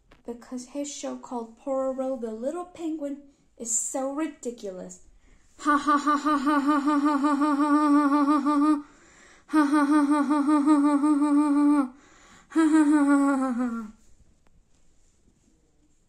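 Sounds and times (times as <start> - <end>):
person humming held notes: 5.6 - 8.9, 9.5 - 14.0.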